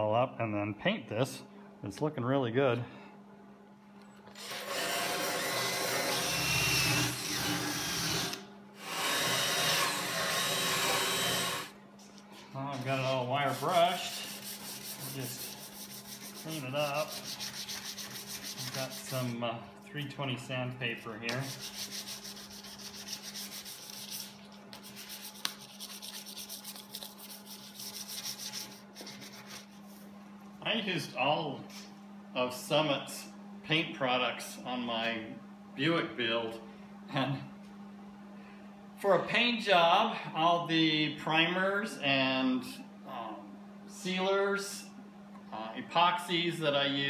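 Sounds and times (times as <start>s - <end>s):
drill spinning wire wheel on metal: 4.4s - 11.7s
sandpaper scratching metal: 12.9s - 19.4s, 21.3s - 29.9s.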